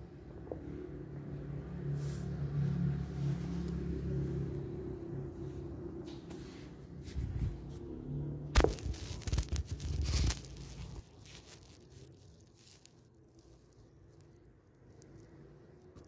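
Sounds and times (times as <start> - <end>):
rustling and scraping: 6.0 - 7.9, 8.6 - 16.0.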